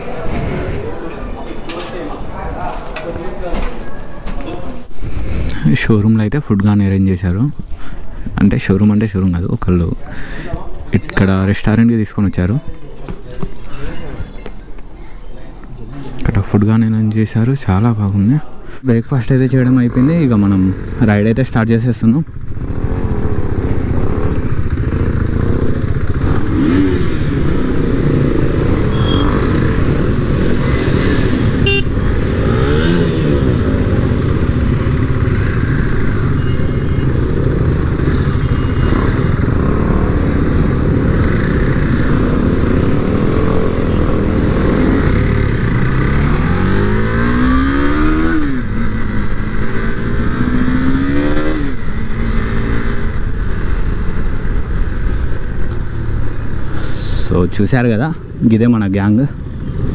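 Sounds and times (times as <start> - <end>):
motorcycle engines running: 19.6 - 59.9.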